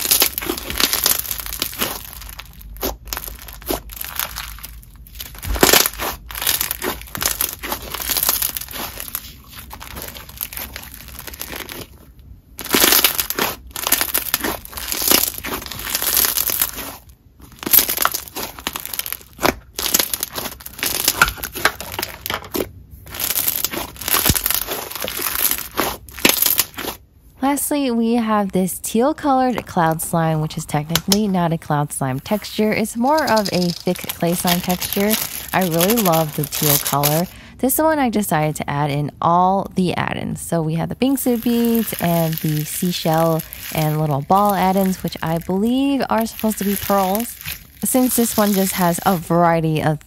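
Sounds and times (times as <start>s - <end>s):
slime crackling and popping: 0.0s - 27.0s, 32.3s - 37.4s, 41.0s - 49.5s.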